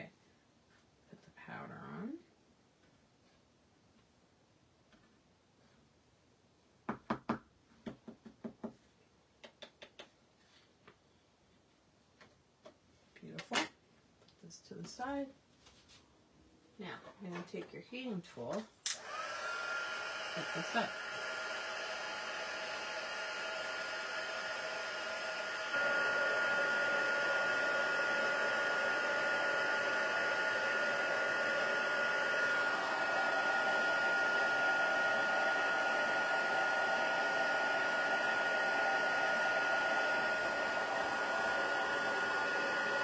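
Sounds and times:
heat tool blowing air with whine: 19.0 - 43.0.

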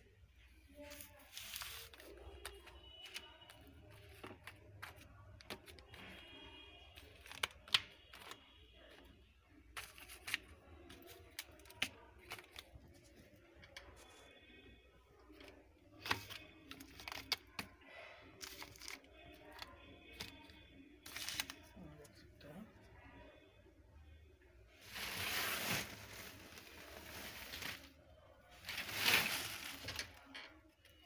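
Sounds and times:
plastic cards clicking and rustling: 1.4 - 6.3, 7.0 - 8.4, 9.8 - 13.0, 15.3 - 17.8, 18.4 - 21.7.

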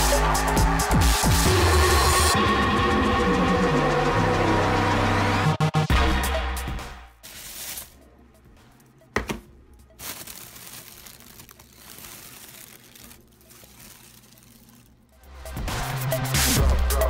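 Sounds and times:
background music: 0.0 - 17.0
plastic containers crinkling: 7.3 - 8.0, 9.2 - 15.2.

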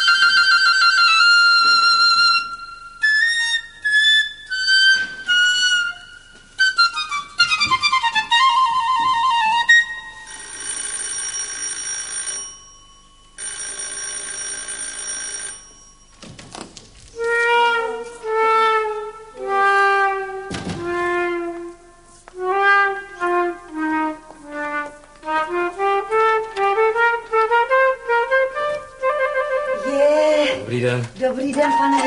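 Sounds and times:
slow woodwind melody: 0.0 - 10.4, 17.1 - 30.7
electric bell ringing: 10.2 - 16.3.

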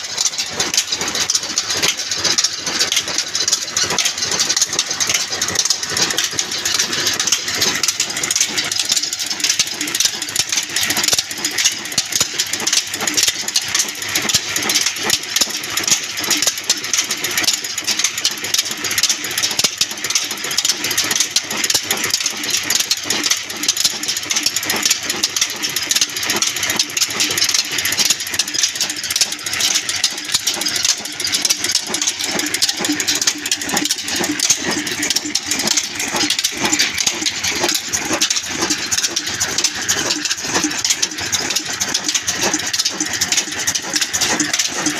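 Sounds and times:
stationary diesel engine clattering: 0.0 - 44.9.

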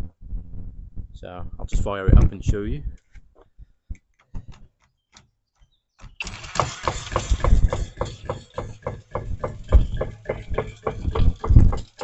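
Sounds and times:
jigsaw running: 6.2 - 12.0
rhythmic knocking: 6.6 - 12.0.

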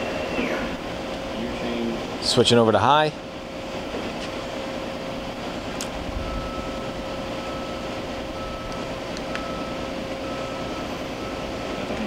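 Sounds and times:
high machine tone: 0.0 - 2.6, 6.1 - 12.0
machine hum and whir: 0.0 - 12.0.

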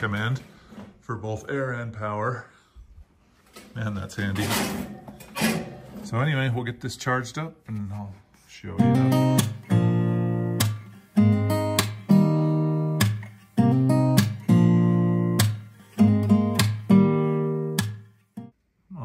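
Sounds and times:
acoustic guitar strumming chords: 8.8 - 18.5.

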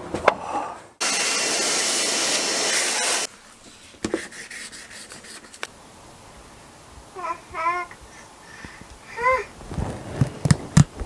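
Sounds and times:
vacuum cleaner sucking water: 1.0 - 3.3.

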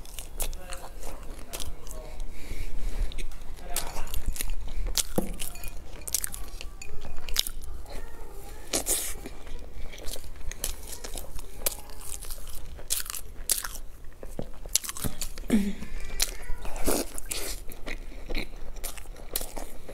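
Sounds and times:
biting and wet chewing: 0.0 - 19.9.

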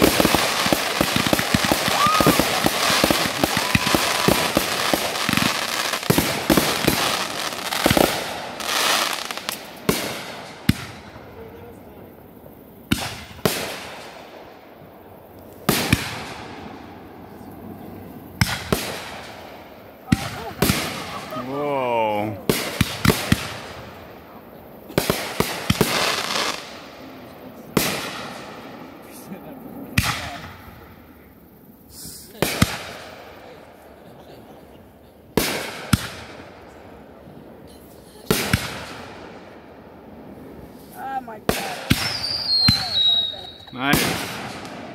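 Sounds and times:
firework shells bursting: 0.0 - 11.1
firework sharp crack: 0.0 - 11.6, 12.8 - 14.8, 15.4 - 17.4, 18.4 - 29.3, 29.9 - 31.0, 31.9 - 33.6, 35.3 - 36.7, 38.0 - 39.7, 40.3 - 44.9
fireworks booming with echo: 0.0 - 12.2, 12.8 - 31.3, 31.9 - 34.6, 35.2 - 44.9.

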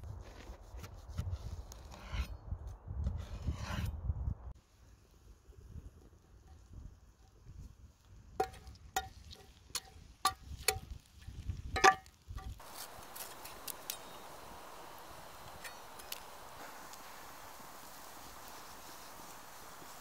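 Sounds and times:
wood fire crackling: 4.7 - 20.0
cleaver tapping on iron pan: 8.4 - 10.9, 11.7 - 12.6
soup pot hissing: 12.6 - 20.0.

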